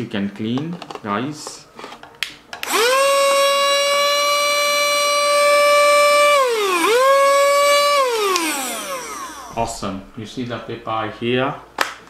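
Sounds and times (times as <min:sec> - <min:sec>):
handheld vacuum cleaner whining: 0:02.6 - 0:09.8.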